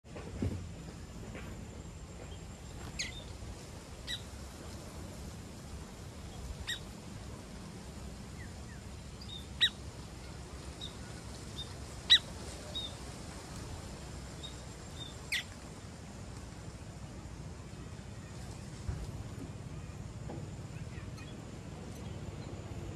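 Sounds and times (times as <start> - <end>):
sparrows chirping: 2.2 - 5.3, 6.2 - 7.0, 7.6 - 13.0, 14.4 - 15.6, 20.7 - 22.7.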